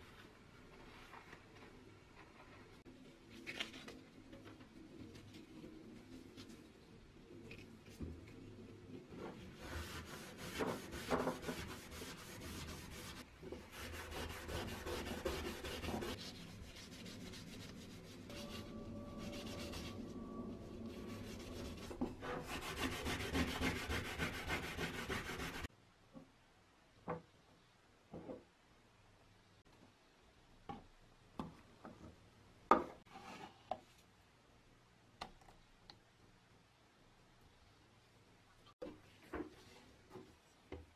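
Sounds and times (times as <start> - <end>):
wood rubbing on abrasive pad: 9.6 - 25.7.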